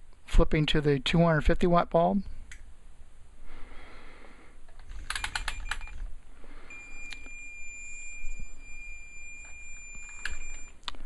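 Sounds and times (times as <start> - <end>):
high-pitched electronic beep: 6.7 - 10.8.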